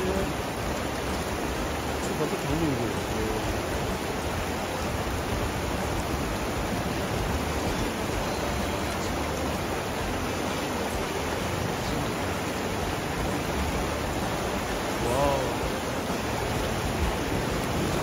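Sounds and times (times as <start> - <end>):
stream rushing over stones: 0.0 - 18.0.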